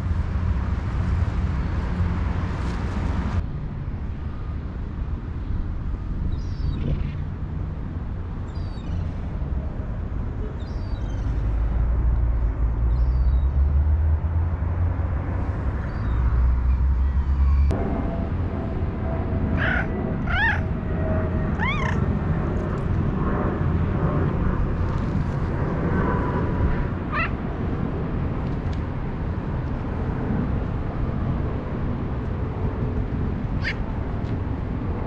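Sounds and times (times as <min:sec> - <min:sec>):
low background rumble: 0:14.2 - 0:35.0
cats meowing: 0:19.6 - 0:20.7, 0:21.6 - 0:22.0, 0:27.1 - 0:27.4.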